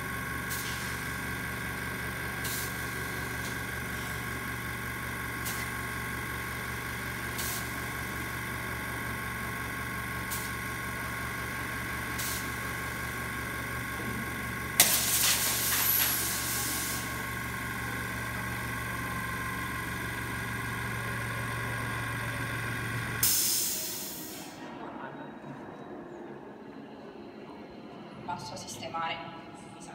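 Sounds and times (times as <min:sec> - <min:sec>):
air compressor humming: 0:00.0 - 0:24.6
loud hiss of compressed air: 0:00.5 - 0:01.1, 0:02.4 - 0:03.6, 0:07.3 - 0:07.8, 0:12.1 - 0:12.7, 0:14.8 - 0:17.2, 0:23.2 - 0:24.6.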